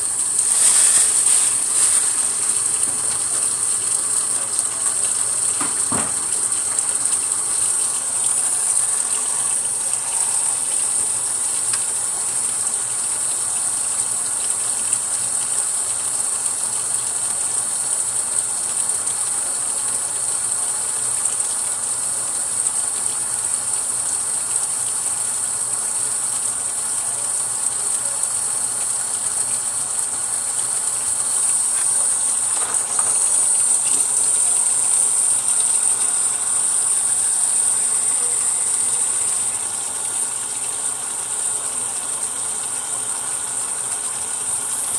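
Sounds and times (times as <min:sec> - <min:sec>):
hands rinsing tubes: 0:00.0 - 0:12.6, 0:28.2 - 0:44.9
faucet running into plastic bin: 0:00.0 - 0:44.9.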